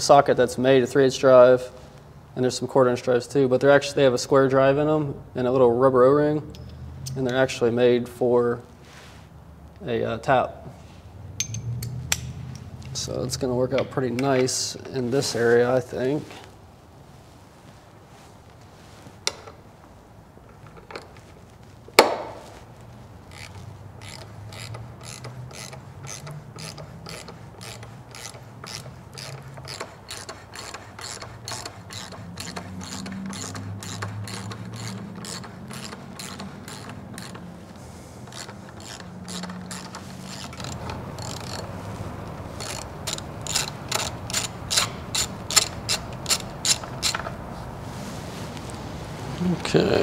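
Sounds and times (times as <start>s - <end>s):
hand ratchet clicking: 23.3s - 47.4s.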